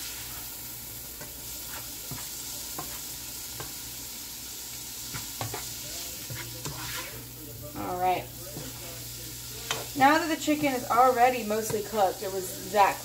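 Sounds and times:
spatula scraping a pan: 0.0 - 3.9, 4.9 - 7.4
chicken sizzling in hot oil: 0.0 - 13.0.

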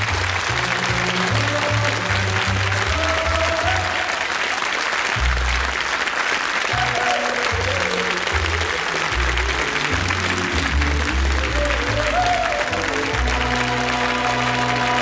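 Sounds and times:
sitcom theme music: 0.0 - 4.0, 6.8 - 15.0
studio audience applause: 0.0 - 15.0.

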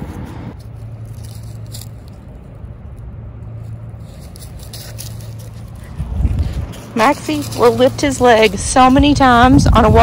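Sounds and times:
light rustling: 0.0 - 2.6, 3.5 - 9.1
low motor hum: 0.0 - 10.0.

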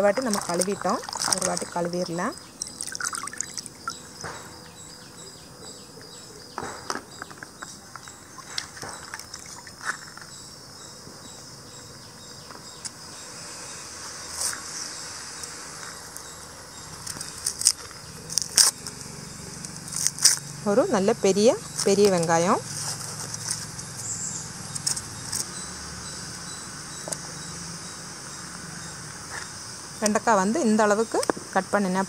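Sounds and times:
onion skin crackling: 0.0 - 3.8, 16.9 - 20.6
insects chirring: 0.0 - 32.0.

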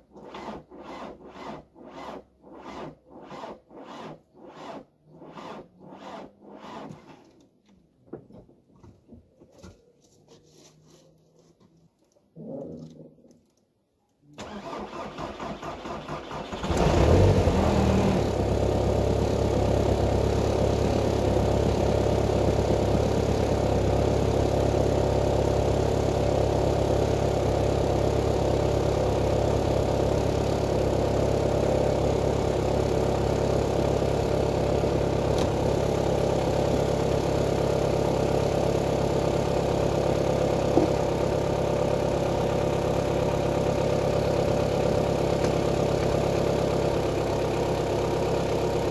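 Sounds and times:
starter motor cranking: 14.4 - 17.4
diesel engine idling unmuffled: 16.7 - 48.9.

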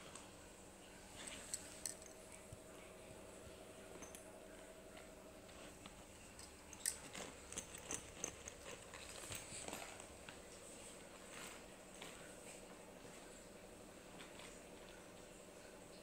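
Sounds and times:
faint steady hum: 0.0 - 16.0
fabric backpack rustling: 5.4 - 10.4.

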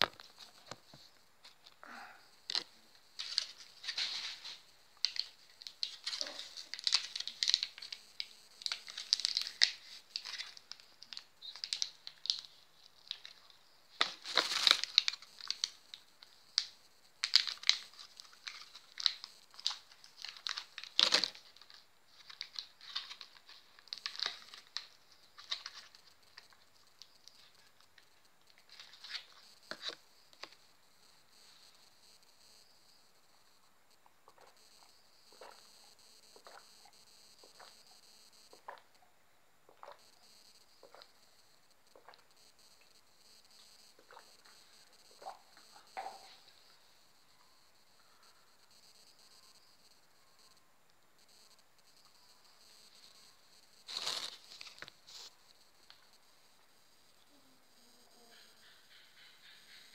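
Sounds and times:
blister pack crinkling: 2.5 - 30.6, 53.8 - 55.3.

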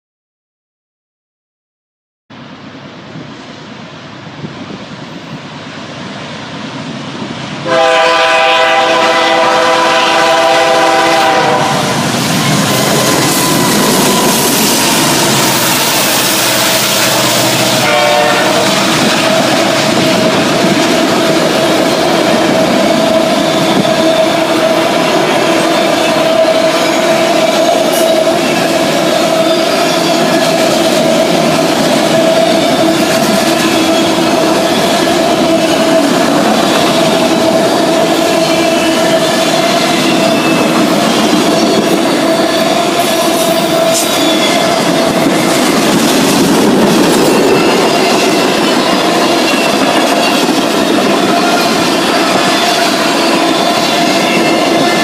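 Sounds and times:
wheels rumbling on rail: 2.3 - 55.0
diesel train rumble: 2.4 - 55.0
train horn blasts: 7.6 - 21.3.

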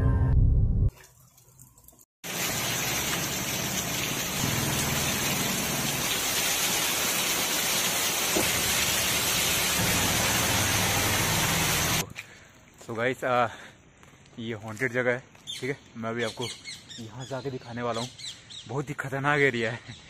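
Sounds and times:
heavy rain: 2.2 - 12.0.

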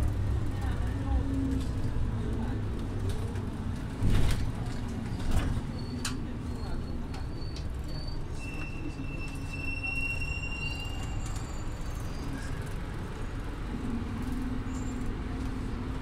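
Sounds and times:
bus engine rumbling: 0.0 - 16.0
high-pitched squeal: 7.4 - 12.5.

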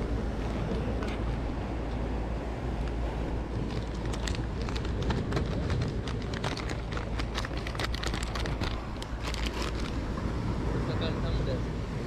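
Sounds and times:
wind and sea rumble: 0.0 - 12.0
plastic packets crinkling: 3.7 - 10.0.

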